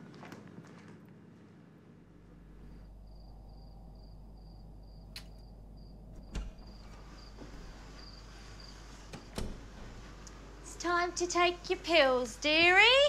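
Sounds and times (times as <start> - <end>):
low steady hum: 1.8 - 13.0
cricket chirping: 2.7 - 9.3.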